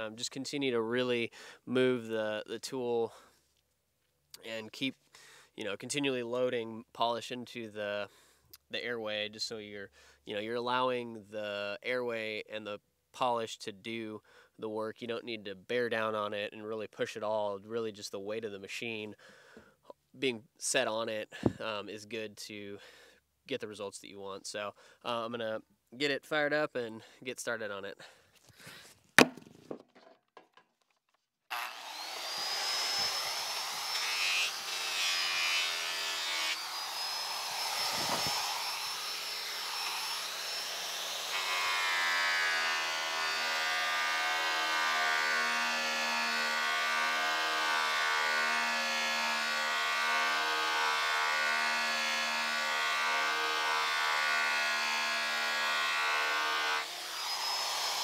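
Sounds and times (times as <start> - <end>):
grinder motor whine: 31.5 - 44.7, 56.8 - 58.0.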